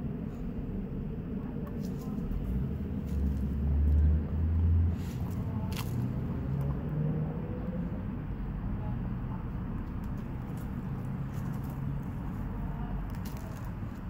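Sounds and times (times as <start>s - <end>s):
low outdoor rumble: 0.0s - 14.0s
dog paws digging in soil: 5.0s - 6.2s, 10.1s - 14.0s.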